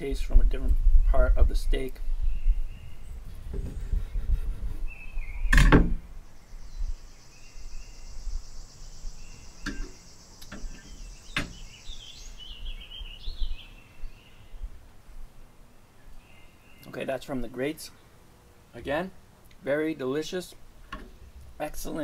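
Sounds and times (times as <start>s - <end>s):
faint bird chirps: 3.8s - 14.7s.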